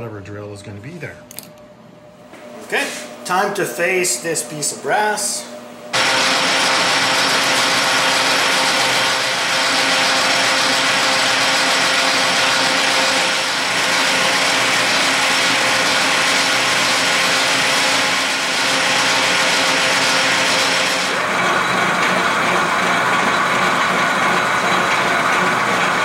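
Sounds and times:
metal lathe whirring: 0:06.0 - 0:26.0.

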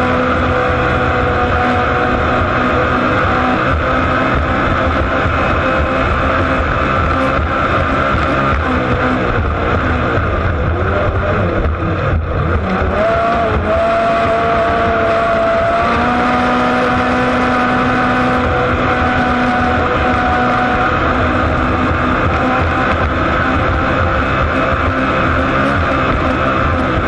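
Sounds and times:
boat engine running hard: 0:00.0 - 0:27.0.

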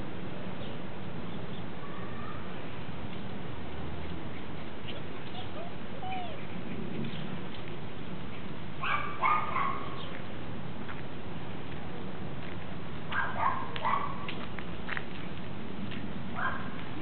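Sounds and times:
small dog yapping: 0:04.9 - 0:06.4, 0:08.8 - 0:10.0, 0:13.2 - 0:14.3.

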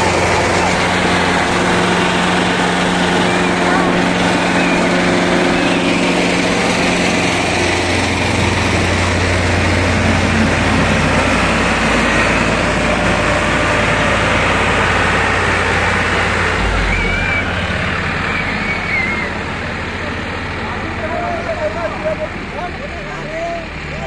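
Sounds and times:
tractor engines under load: 0:00.0 - 0:24.0.

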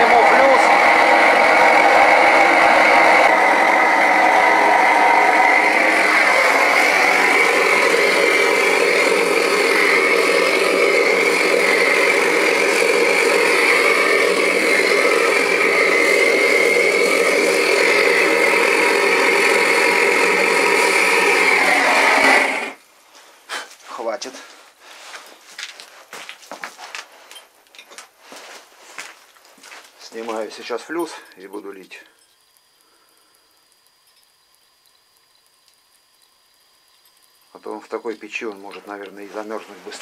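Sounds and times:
gas burner flame roaring: 0:00.0 - 0:22.8, 0:28.1 - 0:40.0
high whistling tone: 0:00.0 - 0:22.8.

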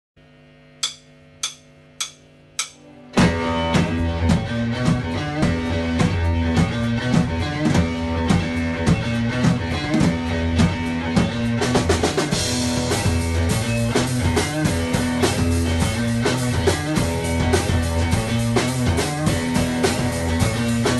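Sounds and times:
sharp clicks: 0:00.8 - 0:02.8
band with drum beat and bass: 0:03.2 - 0:20.9.

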